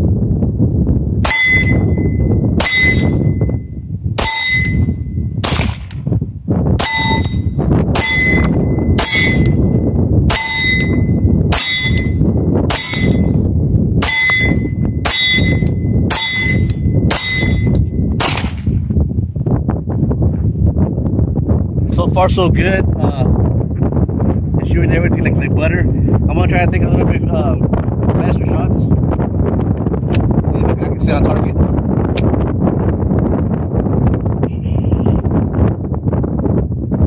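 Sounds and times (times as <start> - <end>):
wind rumbling on microphone: 0.0 - 37.0
steel target clanging: 1.2 - 3.4, 4.2 - 5.9, 6.8 - 13.4, 14.0 - 18.6
pistol shots: 5.4 - 6.0, 18.2 - 18.7.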